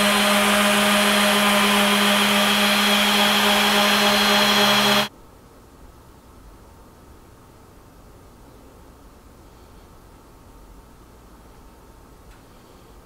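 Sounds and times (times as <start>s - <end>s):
orbital sander sanding wood: 0.0s - 5.1s.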